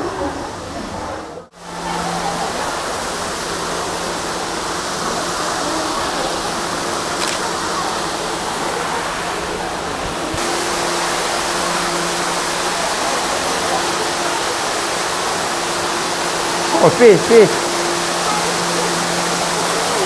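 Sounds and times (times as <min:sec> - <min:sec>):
waterfall pouring: 0:01.8 - 0:20.0.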